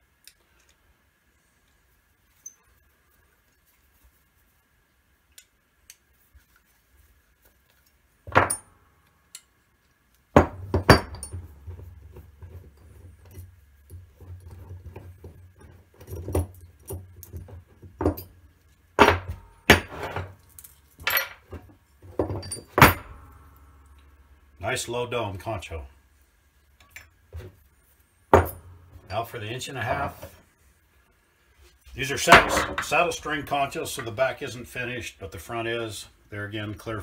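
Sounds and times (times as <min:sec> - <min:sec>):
metal clinks: 0:10.7 - 0:11.8.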